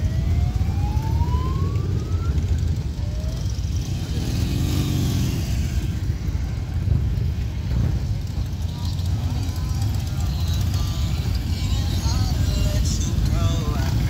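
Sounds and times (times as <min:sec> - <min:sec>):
motorcycles rumbling past: 0:00.2 - 0:14.0
motorcycle engine revving: 0:00.7 - 0:07.3.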